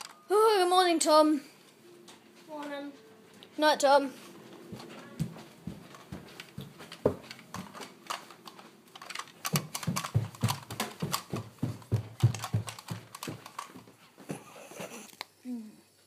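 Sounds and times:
footsteps on hardwood floor: 1.6s - 14.5s.

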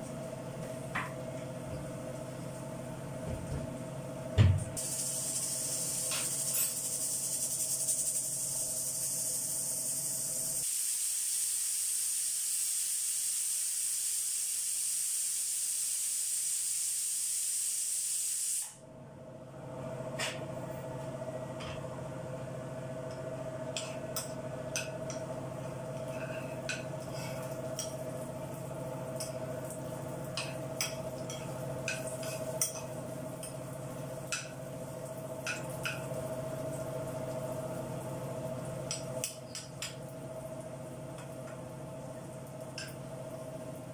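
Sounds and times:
pressure cooker steam hissing: 4.8s - 18.7s.

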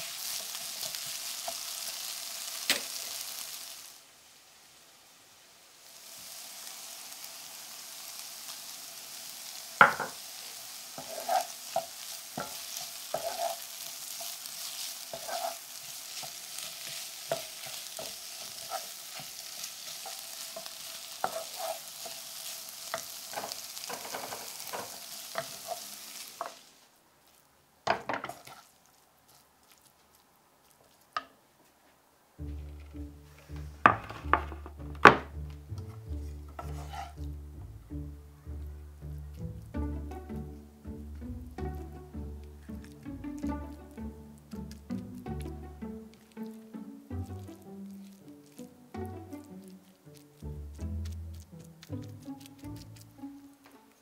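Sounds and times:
vegetables sizzling in frying pan: 0.0s - 31.4s, 32.4s - 54.0s
wooden spatula scraping pan: 9.8s - 26.7s, 27.9s - 28.7s, 32.4s - 37.3s.

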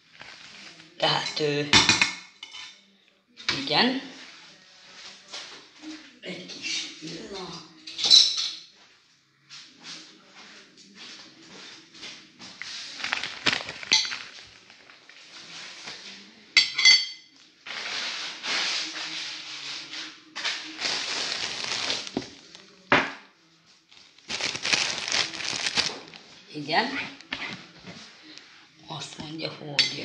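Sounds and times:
rustling handling noise: 0.0s - 1.0s, 12.5s - 16.2s, 20.4s - 22.8s, 23.8s - 26.5s.

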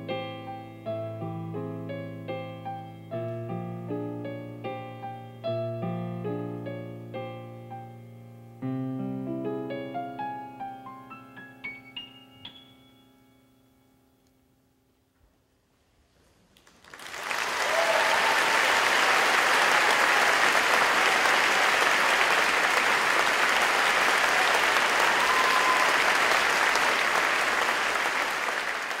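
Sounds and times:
audience applause: 16.6s - 29.0s.

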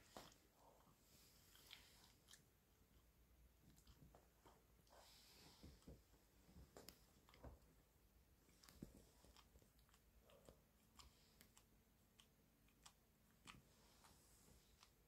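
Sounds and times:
dog licking and nibbling: 8.4s - 15.0s.

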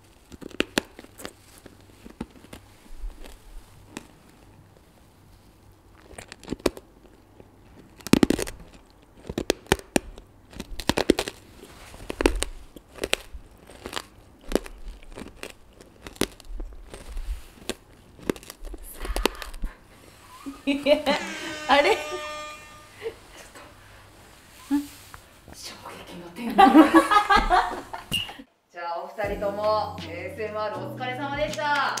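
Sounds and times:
hard candy crunching: 0.0s - 19.9s.

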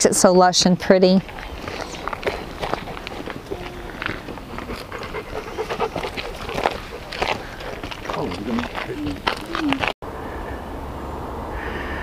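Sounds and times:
dog panting: 1.3s - 9.9s.

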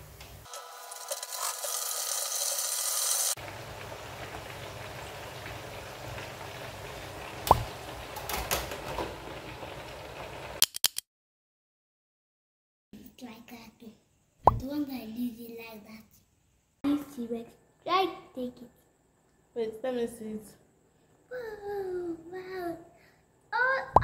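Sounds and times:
hot oil sizzling in deep fryer: 0.0s - 10.6s.

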